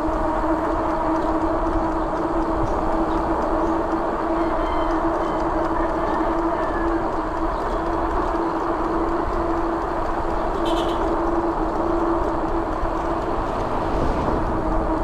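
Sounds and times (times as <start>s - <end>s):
bike tyres humming on pavement: 0.0s - 15.0s
wind noise: 7.0s - 15.0s.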